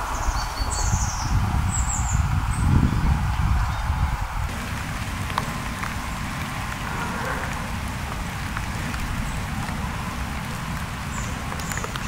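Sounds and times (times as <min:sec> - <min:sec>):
rain falling in forest: 0:00.0 - 0:12.0
low even rumble: 0:00.5 - 0:12.0
drops ticking: 0:04.5 - 0:12.0.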